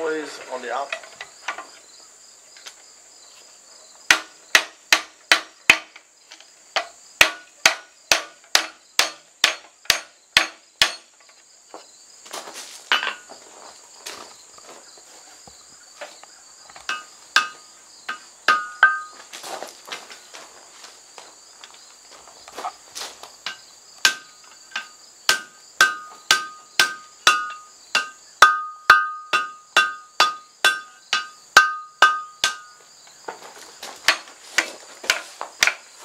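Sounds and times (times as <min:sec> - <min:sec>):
high insect chorus: 0:00.0 - 0:36.0
hammer striking hot steel: 0:07.2 - 0:11.0, 0:16.9 - 0:19.1, 0:23.5 - 0:32.8
hammer ringing off anvil: 0:18.5 - 0:19.2, 0:24.8 - 0:32.8.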